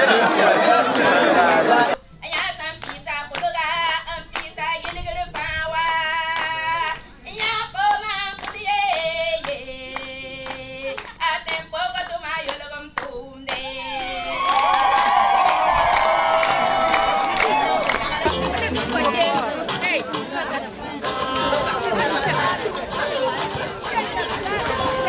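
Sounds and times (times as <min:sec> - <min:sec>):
rhythmic hand clapping: 0:00.0 - 0:02.0, 0:02.8 - 0:03.6, 0:08.3 - 0:13.6, 0:17.2 - 0:25.0
crowd noise: 0:00.0 - 0:02.2, 0:13.6 - 0:25.0
woman singing into microphone: 0:21.0 - 0:25.0.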